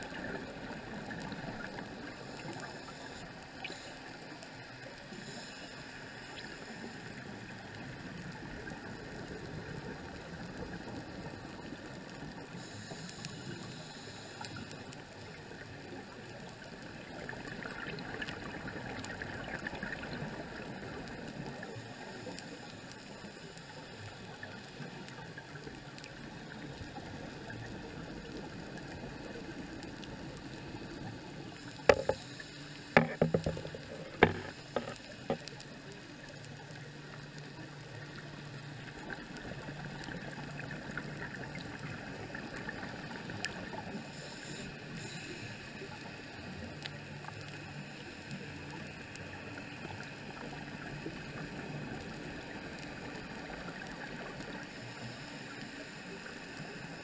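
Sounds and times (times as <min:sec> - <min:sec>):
muffled underwater noise: 0:00.0 - 0:57.0
sharp clicks and knocks: 0:32.9 - 0:35.5.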